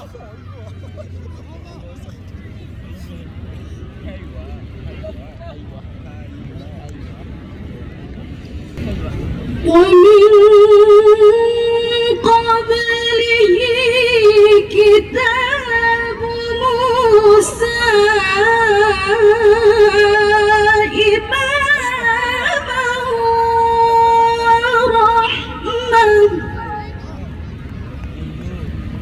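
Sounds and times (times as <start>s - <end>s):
woman reciting melodically: 9.6s - 27.0s.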